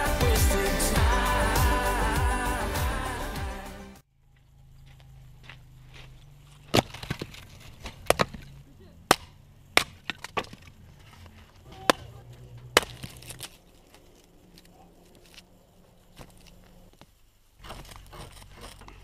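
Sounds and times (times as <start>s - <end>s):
wood splintering: 4.8s - 15.5s, 16.2s - 19.0s
hatchet chopping wood: 6.7s - 8.5s, 9.1s - 10.7s, 12.7s - 13.6s.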